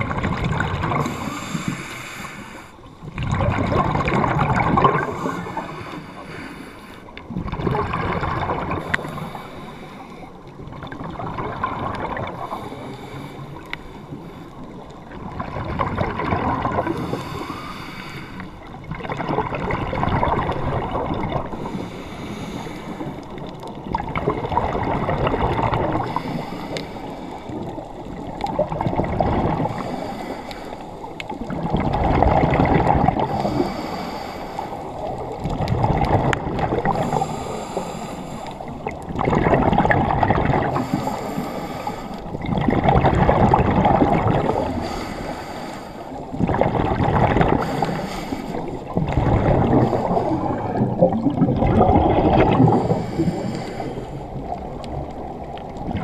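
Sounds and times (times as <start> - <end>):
bubbles gurgling: 0.0 - 1.8, 3.0 - 6.2, 7.2 - 9.6, 10.4 - 13.9, 14.7 - 17.7, 18.6 - 21.9, 23.0 - 26.5, 27.3 - 30.0, 31.1 - 33.9, 34.7 - 37.9, 38.6 - 41.4, 42.2 - 45.1, 46.2 - 56.0
diver breathing through regulator: 0.9 - 2.9, 4.8 - 7.2, 8.7 - 10.4, 12.2 - 14.8, 16.7 - 18.7, 21.4 - 23.4, 25.7 - 27.9, 29.4 - 31.3, 32.9 - 35.3, 36.8 - 39.0, 40.4 - 42.6, 44.2 - 55.1.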